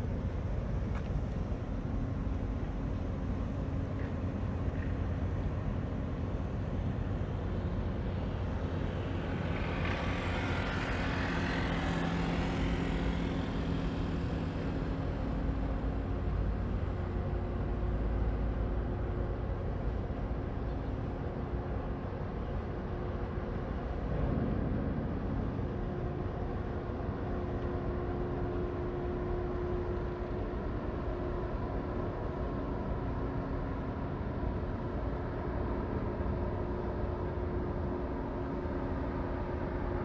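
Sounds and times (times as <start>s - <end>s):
ship engines droning: 0.0s - 40.0s.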